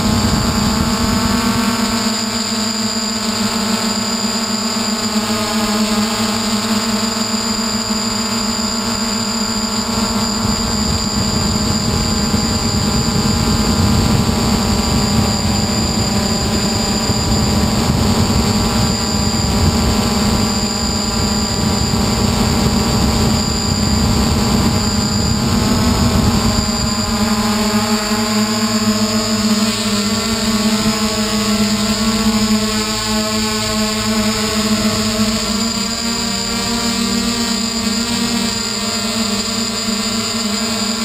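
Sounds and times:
drone propellers humming: 0:00.0 - 0:41.0
rushing air noise: 0:10.4 - 0:29.0.

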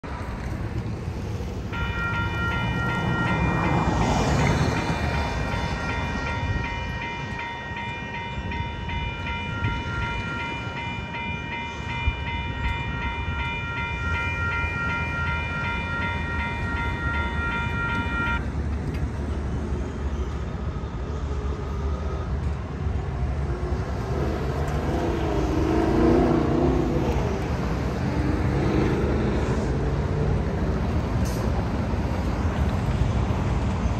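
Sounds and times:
road traffic rumble: 0:00.0 - 0:33.9
railroad crossing bell ringing: 0:01.6 - 0:18.5.

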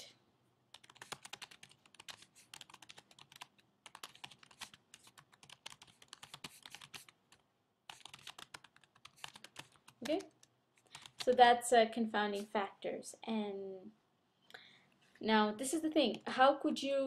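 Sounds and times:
typing on a keyboard: 0:00.7 - 0:07.2, 0:07.9 - 0:11.3.

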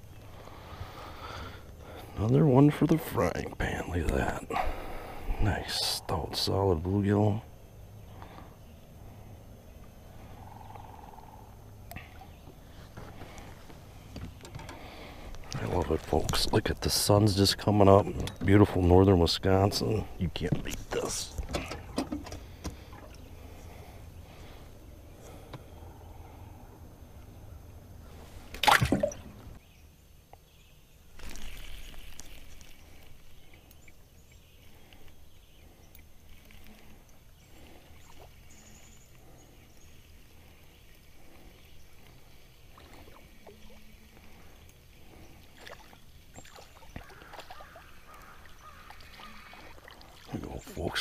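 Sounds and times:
water sloshing around boat: 0:11.7 - 0:29.6, 0:31.1 - 0:51.0.

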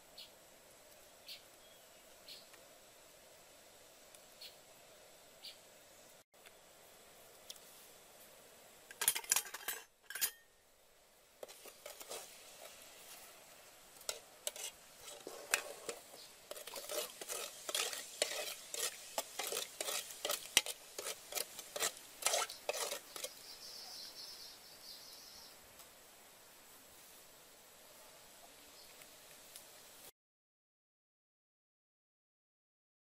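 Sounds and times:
metal spoon stirring in pot: 0:08.9 - 0:10.5, 0:11.4 - 0:13.4, 0:14.0 - 0:23.5.

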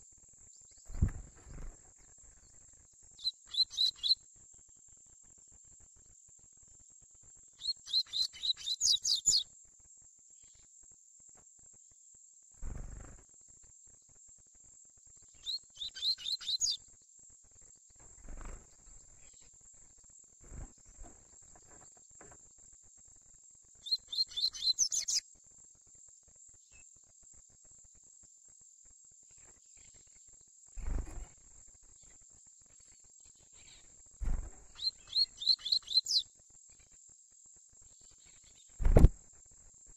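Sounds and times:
bird singing rapid high notes: 0:34.8 - 0:36.2.

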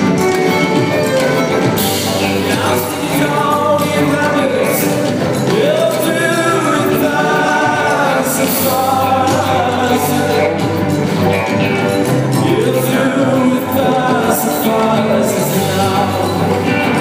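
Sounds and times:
live band playing: 0:00.0 - 0:17.0.

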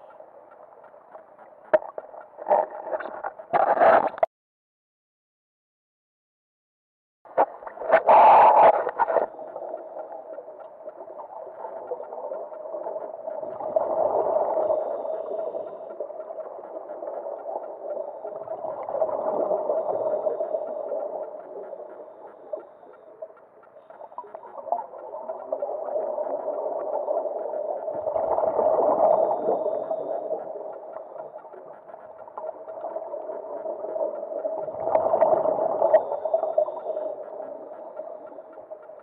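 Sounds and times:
exhaled bubbles underwater: 0:07.4 - 0:38.8
steady breathing hum: 0:11.9 - 0:38.9.

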